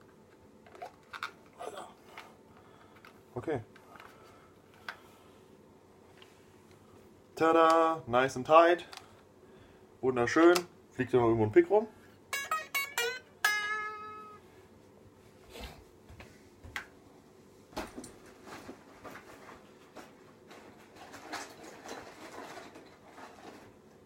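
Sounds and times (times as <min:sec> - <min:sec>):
guitar strings plucked: 0:12.3 - 0:14.4.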